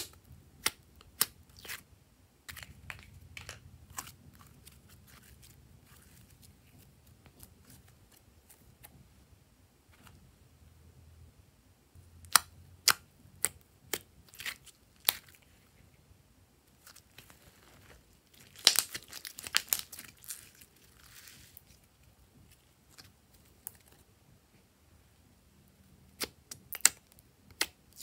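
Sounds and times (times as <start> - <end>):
slime crackling: 16.7 - 24.0.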